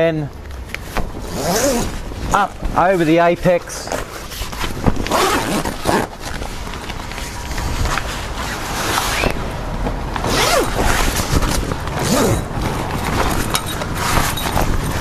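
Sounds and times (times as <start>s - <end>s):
canvas rustling: 0.5s - 15.0s
zip running: 1.2s - 2.0s, 3.9s - 6.4s, 10.2s - 15.0s.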